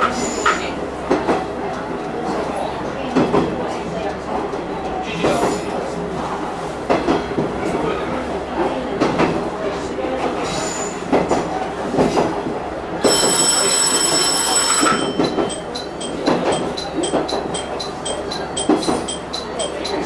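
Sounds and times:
train wheels clacking: 0.0s - 7.9s, 8.6s - 20.0s
diesel railcar running: 0.0s - 20.0s
high bell-like ringing: 13.1s - 20.0s.

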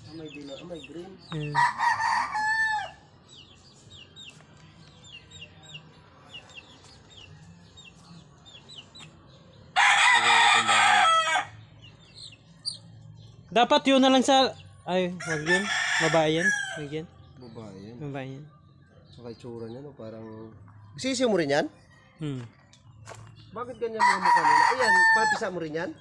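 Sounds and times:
chick peeping: 0.1s - 12.9s
rooster crowing: 1.6s - 3.0s, 9.8s - 11.6s, 15.2s - 16.9s, 24.0s - 25.6s.

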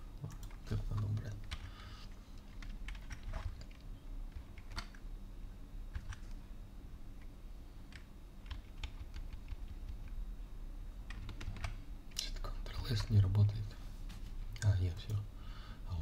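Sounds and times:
low steady hum: 0.0s - 16.0s
keyboard keystrokes: 2.6s - 5.0s, 5.9s - 6.4s, 7.9s - 10.2s, 11.1s - 11.8s.

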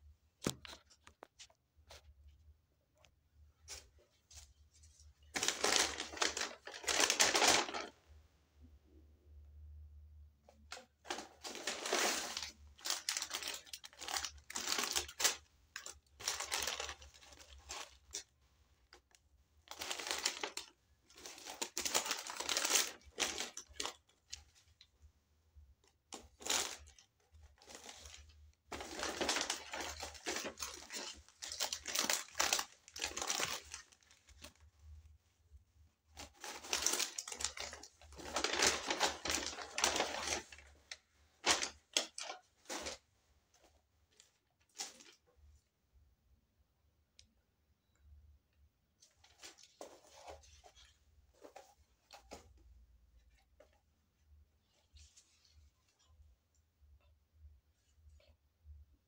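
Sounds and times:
paper bag rustling: 3.7s - 8.0s, 10.7s - 18.3s, 19.7s - 24.6s, 26.1s - 34.7s, 36.2s - 43.0s.

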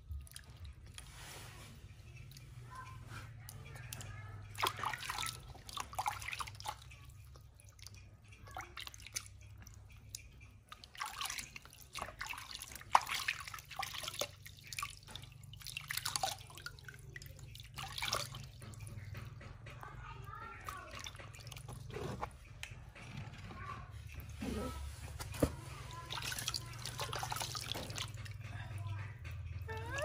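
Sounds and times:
water splashing into plastic tub: 3.4s - 19.7s, 20.5s - 22.5s, 25.1s - 30.0s.

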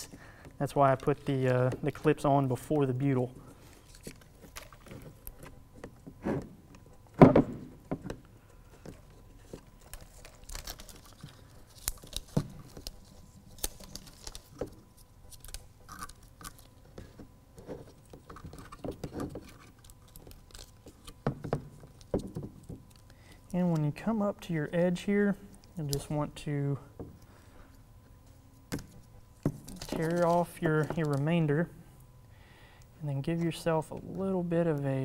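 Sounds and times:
tape and paper backing rustling: 0.0s - 7.0s, 8.4s - 24.2s, 28.1s - 31.6s.

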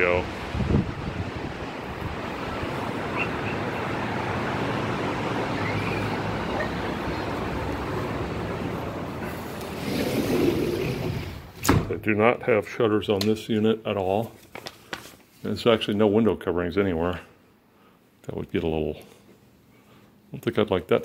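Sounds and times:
wind: 0.0s - 12.0s
distant road traffic: 1.2s - 11.6s.

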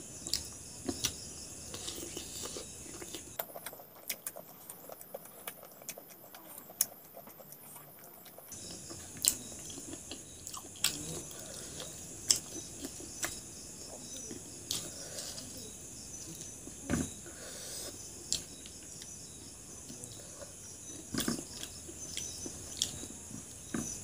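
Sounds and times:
crickets chirping: 0.0s - 24.0s
person chewing and smacking: 0.2s - 15.0s, 18.2s - 19.2s, 20.0s - 24.0s.

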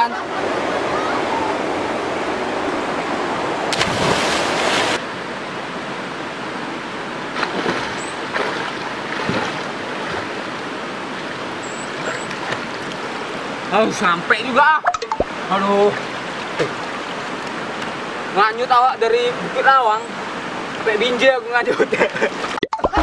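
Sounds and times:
river rushing over stones: 0.4s - 14.6s
faint water splashes: 3.7s - 5.0s, 7.3s - 13.8s.

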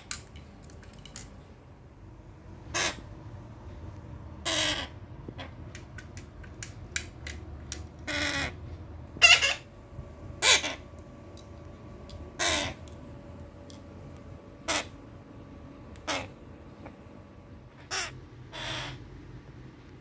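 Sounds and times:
parrot squawking: 2.7s - 3.0s, 4.4s - 5.6s, 8.0s - 8.6s, 9.2s - 9.7s, 10.4s - 10.8s, 12.4s - 12.8s, 14.6s - 15.0s, 16.0s - 16.3s, 17.8s - 19.0s.

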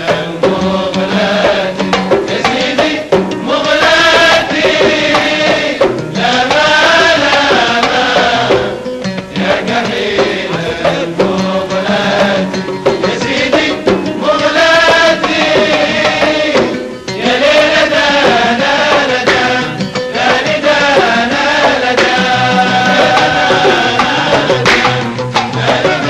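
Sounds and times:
drum strokes: 0.0s - 26.0s
group of men singing: 0.0s - 26.0s
hand claps: 24.7s - 25.0s.

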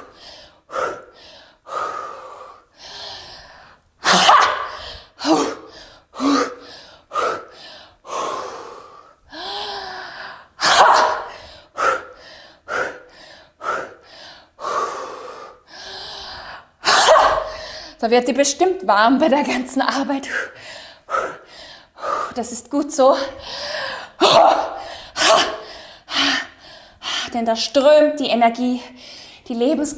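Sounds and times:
woman breathing in: 0.0s - 3.8s, 4.7s - 10.6s, 11.2s - 16.8s, 17.4s - 18.0s, 20.4s - 22.4s, 23.2s - 24.2s, 24.8s - 27.1s, 28.9s - 29.4s.

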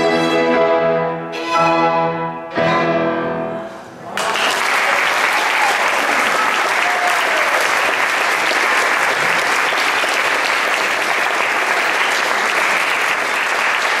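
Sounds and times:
audience applauding: 4.0s - 14.0s.

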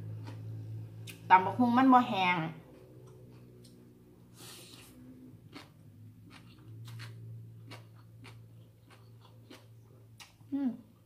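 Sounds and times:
low steady hum: 0.0s - 11.0s
person slurping noodles: 4.3s - 5.0s.

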